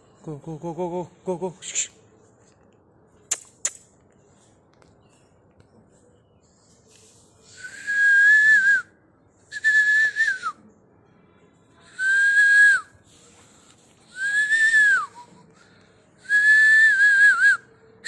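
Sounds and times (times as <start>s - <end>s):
person whistling: 7.5s - 8.9s, 9.5s - 10.6s, 12.0s - 12.9s, 14.1s - 15.4s, 16.2s - 17.7s.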